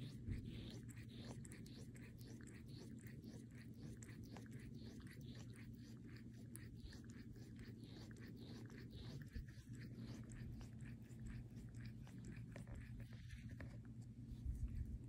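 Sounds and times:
cat tongue licking: 0.0 - 15.0.

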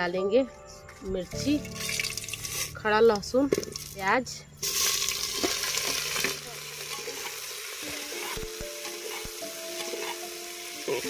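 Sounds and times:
onions sizzling in hot oil: 4.6 - 11.0
spoon stirring in pot: 8.1 - 10.3.

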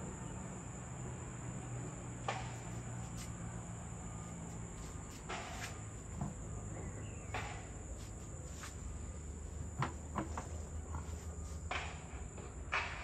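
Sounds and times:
construction knocks: 9.7 - 13.0.

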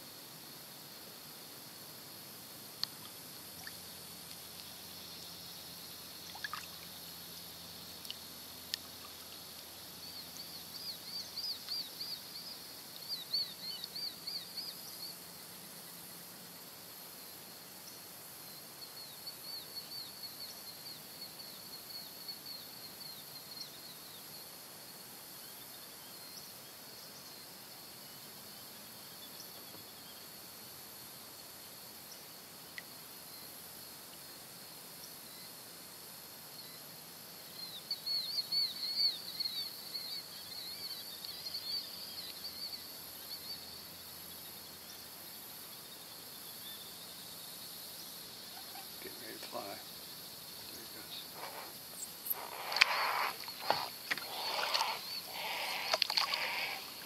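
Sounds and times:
high insect drone: 0.0 - 57.0
small bird chirping: 46.5 - 57.0.

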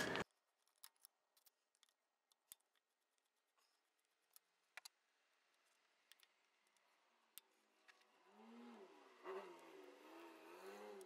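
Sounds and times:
faint metal clicks: 0.0 - 8.1.

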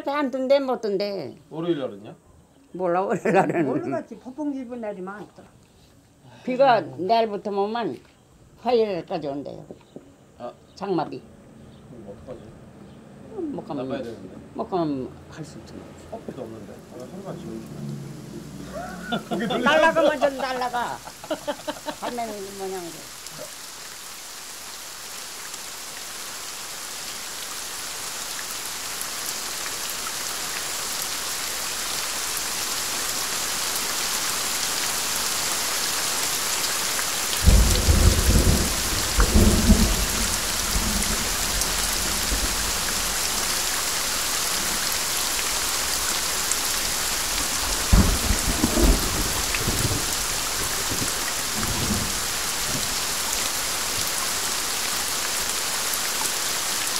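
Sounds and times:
steady rain: 14.7 - 56.9
thunder rolling: 17.2 - 20.3, 37.4 - 43.1, 47.2 - 53.0.

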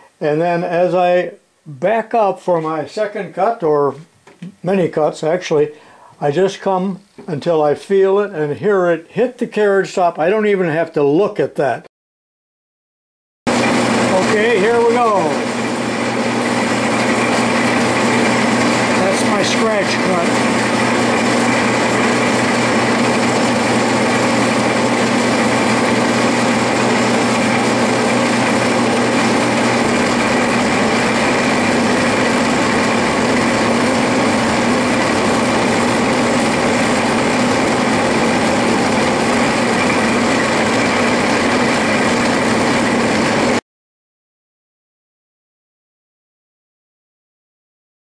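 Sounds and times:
metal lathe running: 13.5 - 43.6.

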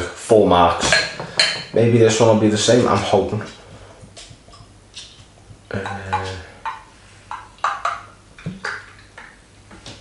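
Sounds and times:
glass bottle clinking: 0.8 - 1.8.

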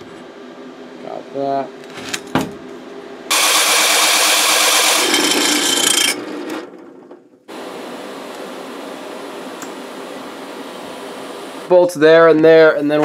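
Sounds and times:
hole saw cutting metal: 3.3 - 6.3.

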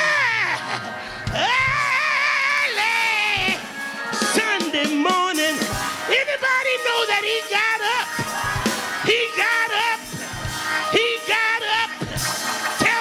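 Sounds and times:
preacher chanting into a microphone: 4.3 - 8.2, 9.0 - 10.2, 10.8 - 12.0.

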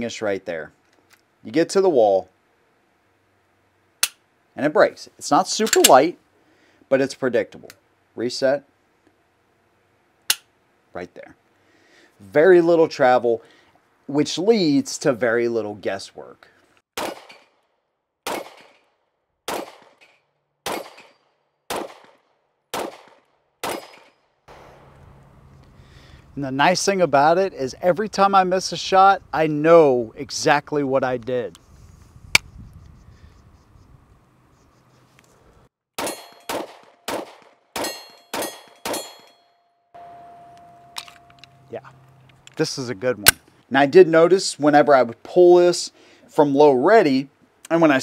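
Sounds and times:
pistol shots with echo: 17.0 - 17.5, 18.2 - 18.8, 19.5 - 20.0, 20.6 - 24.7, 36.0 - 39.3
steel target ringing: 36.0 - 36.7, 37.8 - 41.7
steady ringing tone: 37.9 - 41.7.

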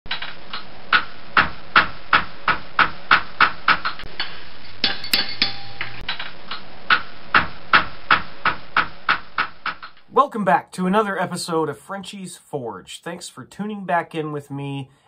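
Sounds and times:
hammer ringing on anvil: 4.8 - 6.0.

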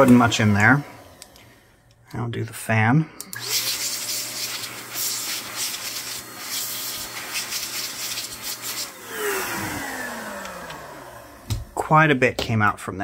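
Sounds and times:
electric blower motor whine: 0.0 - 1.8, 3.2 - 11.9.

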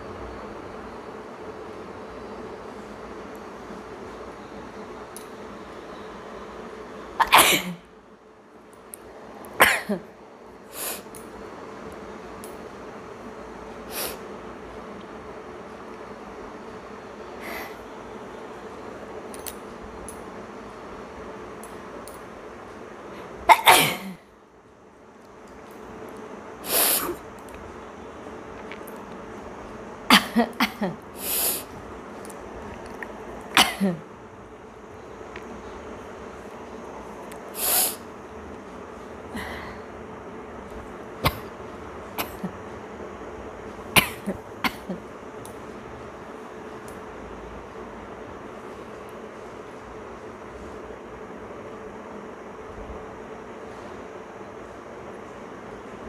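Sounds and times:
woman sneezing: 7.2 - 7.8, 23.5 - 24.2
soft breath sounds: 17.4 - 17.9, 39.3 - 39.9
sharp sniff: 26.6 - 27.2, 31.2 - 31.7, 37.6 - 38.0.

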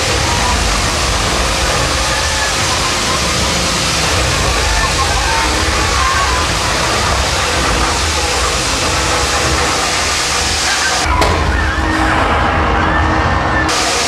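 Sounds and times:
loud rushing hiss: 0.0 - 14.0
low rumble: 0.0 - 14.0.

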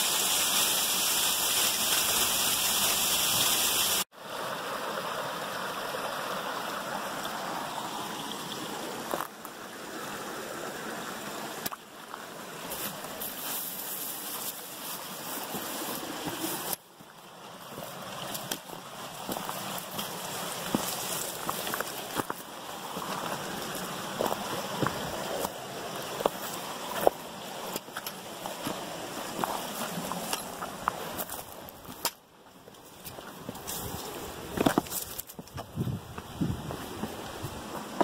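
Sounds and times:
loud steady hiss: 0.0 - 4.1
creek flowing over rocks: 0.0 - 38.0
footsteps on rock and gravel: 11.7 - 17.1, 17.7 - 38.0.

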